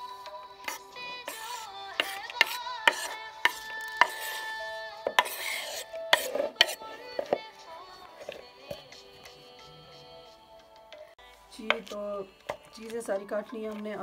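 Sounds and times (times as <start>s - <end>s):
knife scraping on wooden board: 0.7s - 7.4s.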